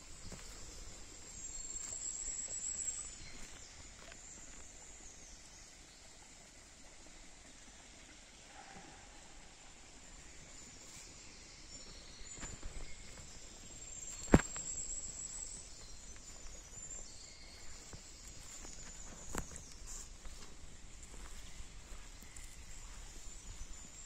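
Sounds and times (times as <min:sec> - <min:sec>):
footsteps on forest path: 0:00.0 - 0:04.9, 0:10.8 - 0:24.0.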